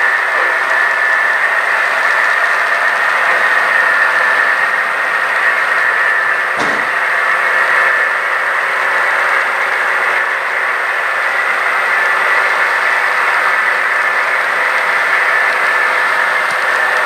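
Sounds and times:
model locomotive whirring: 0.0s - 17.0s.

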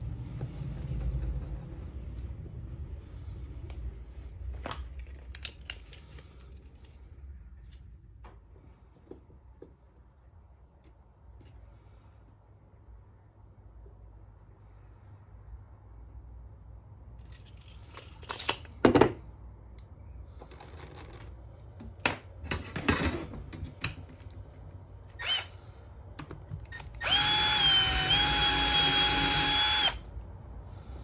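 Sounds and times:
cordless driver driving a screw: 25.2s - 25.5s, 26.7s - 30.0s.

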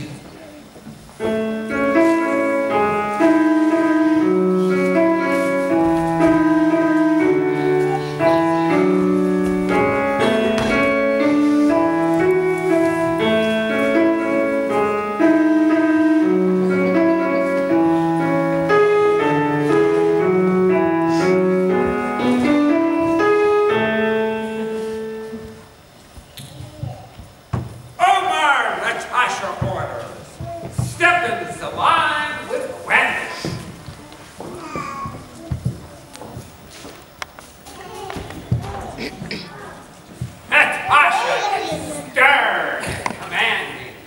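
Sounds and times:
piano music: 0.9s - 26.1s, 27.5s - 33.8s.

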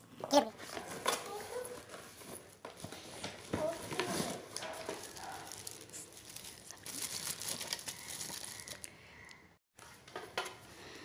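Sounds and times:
plastic wrapping crinkling: 0.7s - 8.9s.

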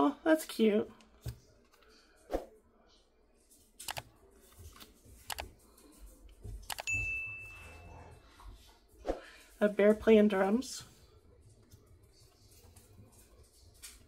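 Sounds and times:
notification bell ding: 6.9s - 7.9s.

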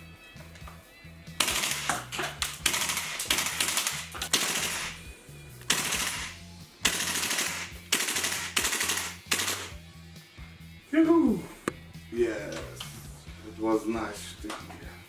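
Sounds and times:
background music: 0.0s - 15.0s
airsoft rifle firing bursts: 1.4s - 5.0s, 5.7s - 9.7s.

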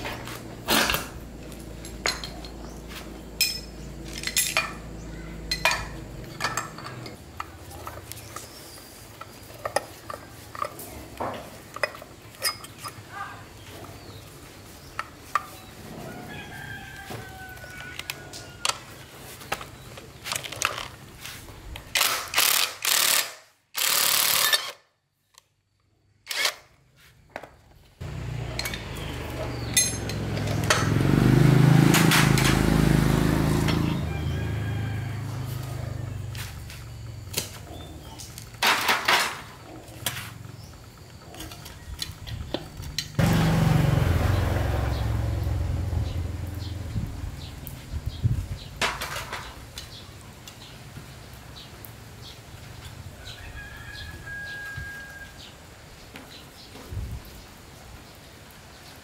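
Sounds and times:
rooster crowing: 15.8s - 19.0s, 31.0s - 36.5s, 53.0s - 55.7s
hand tools clicking on metal: 28.5s - 31.0s.

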